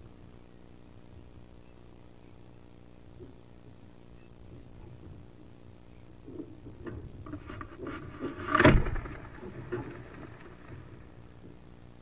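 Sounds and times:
claws scratching wood: 7.2s - 11.4s
duck flapping in nest box: 7.2s - 11.6s
wings brushing wood: 7.2s - 11.6s
loud thump: 8.0s - 11.1s.

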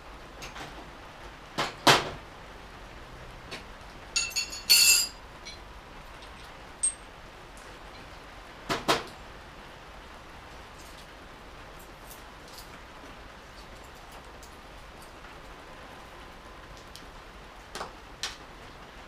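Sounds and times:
metal hand tools clinking: 4.2s - 5.6s, 6.2s - 7.1s.

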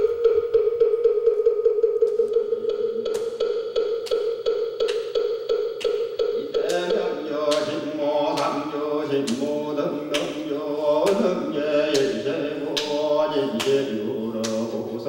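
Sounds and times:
sharp percussive strike: 0.0s - 10.4s
male voices chanting: 6.2s - 15.0s.

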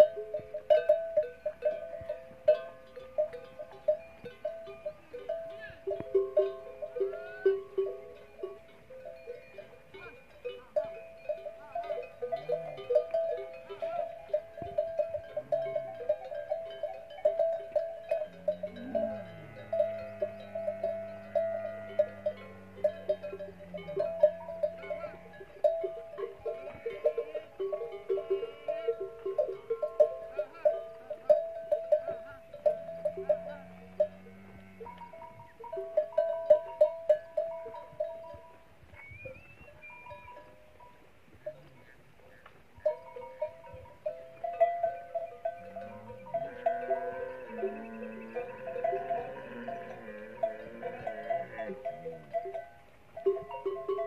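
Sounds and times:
camel bells clanking: 0.0s - 54.0s
long low animal moan: 45.7s - 52.3s.

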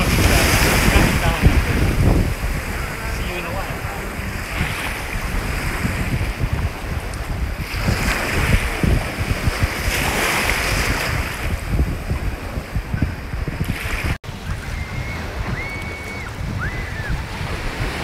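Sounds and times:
surf: 0.0s - 18.0s
waves: 0.0s - 18.0s
wind buffeting microphone: 0.0s - 18.0s
faint high whistled notes: 14.5s - 17.2s.

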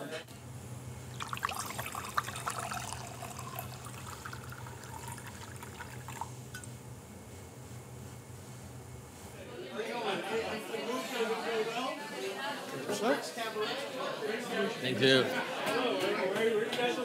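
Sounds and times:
steady low hum: 0.3s - 9.5s
wine pouring into a glass: 1.1s - 6.5s.

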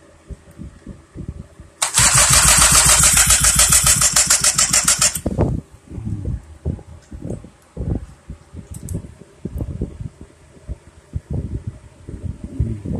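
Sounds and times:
electric drill spinning engine: 1.8s - 5.3s
small two-stroke engine running: 1.8s - 5.3s.

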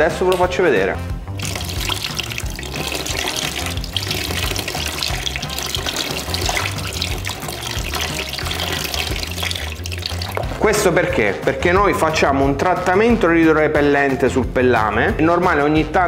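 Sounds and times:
background music with bass line: 0.0s - 16.0s
water pouring from bottle: 1.3s - 10.8s
water splashing into plastic tub: 1.3s - 11.0s.

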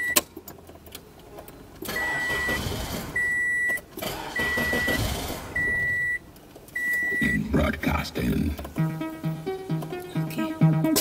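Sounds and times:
car warning chime beeping: 0.0s - 0.2s, 1.9s - 8.1s, 8.7s - 11.0s.

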